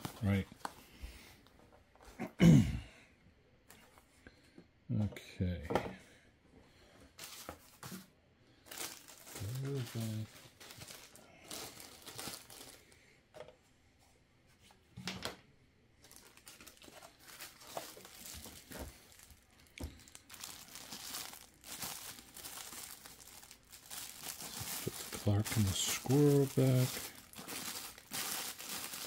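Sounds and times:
plastic bags crinkling: 7.2s - 7.9s, 8.7s - 13.0s, 16.0s - 29.0s.

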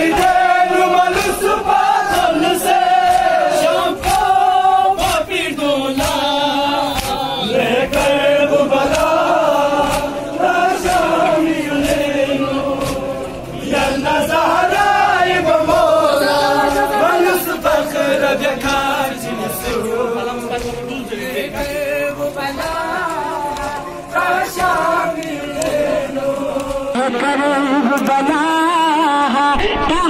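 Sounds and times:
hands slapping chests: 0.0s - 13.9s, 22.5s - 25.9s, 26.5s - 26.9s
crowd of men chanting: 0.0s - 30.0s.

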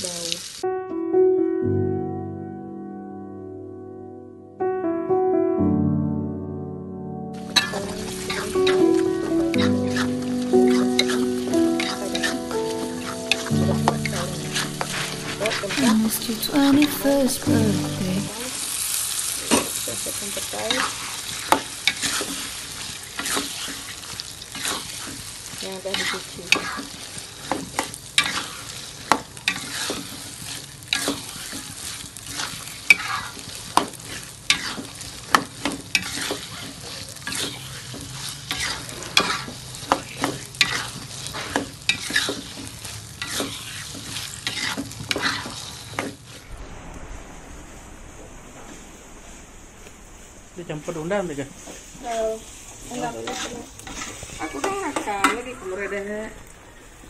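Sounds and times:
food sizzling in a wok: 0.0s - 0.7s, 7.4s - 57.0s
spatula scraping and knocking wok: 7.4s - 18.1s, 19.5s - 46.4s, 53.2s - 55.5s.

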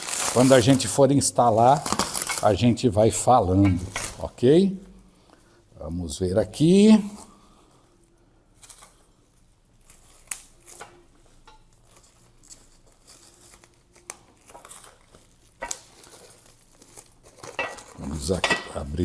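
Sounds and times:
sharp crackles: 0.0s - 2.7s
bubble wrap crinkling: 0.0s - 5.4s, 6.8s - 19.0s.

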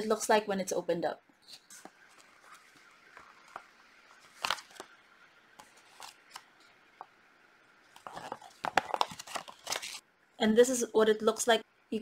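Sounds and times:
paper leaflet rustling: 1.6s - 5.0s, 5.6s - 6.4s, 7.9s - 10.0s.

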